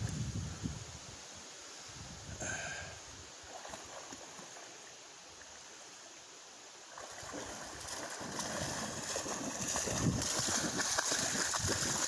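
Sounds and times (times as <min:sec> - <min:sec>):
river water: 0:01.1 - 0:12.0
dog splashing through shallows: 0:06.9 - 0:12.0.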